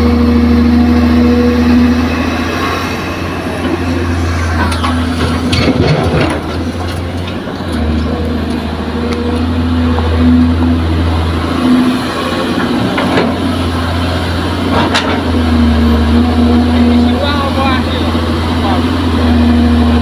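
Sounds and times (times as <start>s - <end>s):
diesel engines running: 0.0s - 20.0s
dirt and rocks clattering into truck: 4.6s - 8.2s.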